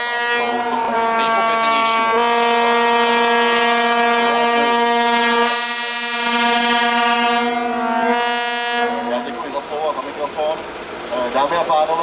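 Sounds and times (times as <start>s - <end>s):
locomotive air horn blast: 0.0s - 9.4s.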